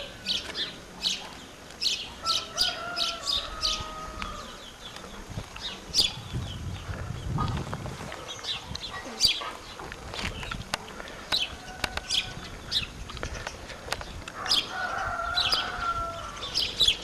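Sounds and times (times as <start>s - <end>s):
small birds chirping: 0.0s - 17.0s
rooster crowing: 2.2s - 4.6s, 14.4s - 16.6s.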